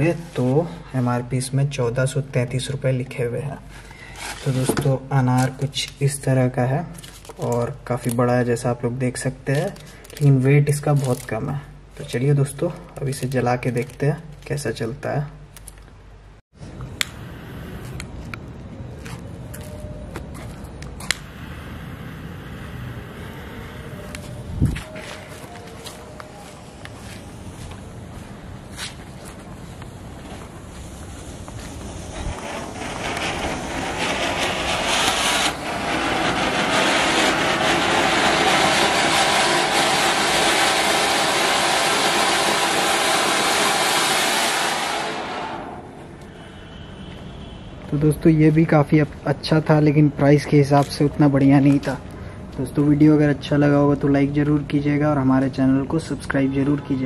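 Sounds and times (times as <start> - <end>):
jet-flame lighter hissing: 16.9 - 18.2, 21.0 - 24.5, 30.6 - 46.8.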